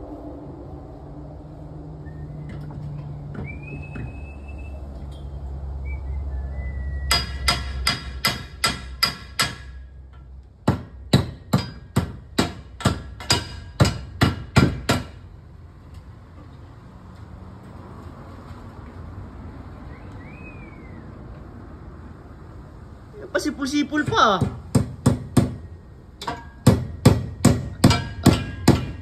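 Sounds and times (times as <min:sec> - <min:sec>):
hammer striking nails into wood: 0:07.1 - 0:09.8, 0:10.6 - 0:15.2, 0:24.0 - 0:25.6, 0:26.2 - 0:29.0.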